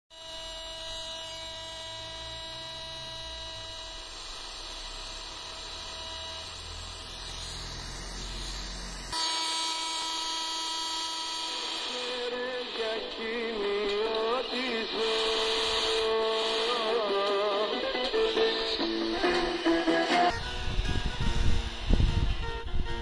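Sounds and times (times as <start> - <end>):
whining radio tones: 0.2 - 23.0
radio static and hum: 11.8 - 21.9.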